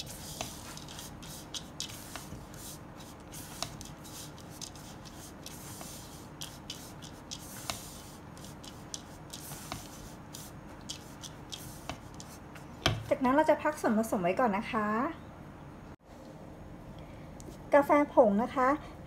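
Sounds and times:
spatula stirring dry mix in bowl: 0.0 - 12.4.

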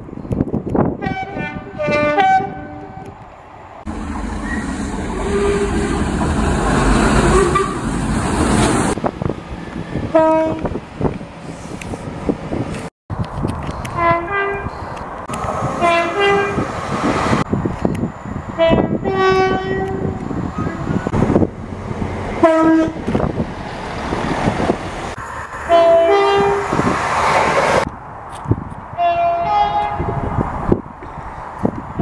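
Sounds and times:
two-tone train horn blasts: 1.0 - 3.1, 3.9 - 6.2, 10.1 - 10.8, 14.0 - 14.8, 15.8 - 16.6, 18.6 - 20.2, 22.4 - 23.0, 25.7 - 26.6, 29.0 - 30.4
trains rumbling past: 1.4 - 12.8, 13.6 - 32.0.

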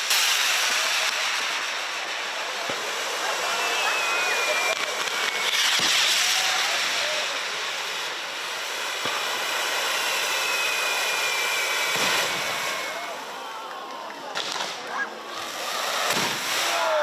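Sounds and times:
fireworks hissing and crackling: 0.0 - 17.0
faint high falling whistle: 3.3 - 7.2, 9.7 - 13.5
sharp pop: 16.1 - 16.5.

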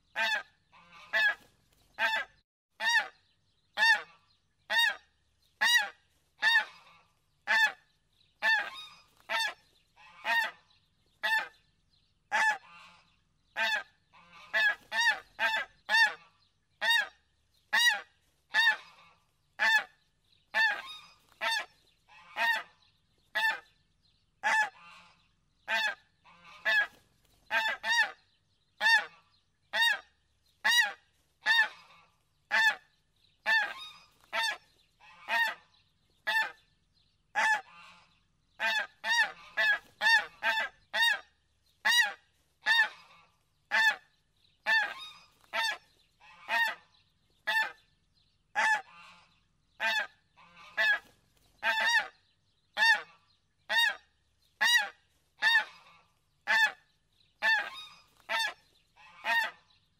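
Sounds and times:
geese honking: 0.0 - 3.2, 3.8 - 7.8, 8.4 - 11.6, 12.3 - 23.7, 24.4 - 36.6, 37.4 - 47.8, 48.6 - 52.2, 52.8 - 59.8.

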